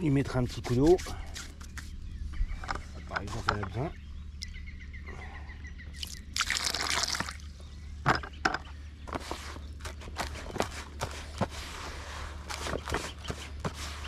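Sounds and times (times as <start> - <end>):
water trickling into bucket: 6.0 - 7.5.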